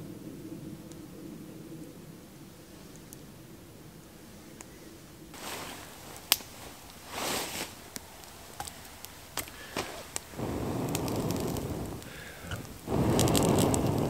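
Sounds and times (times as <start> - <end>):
rain hiss: 0.0 - 14.0
rustling and handling: 5.4 - 10.3.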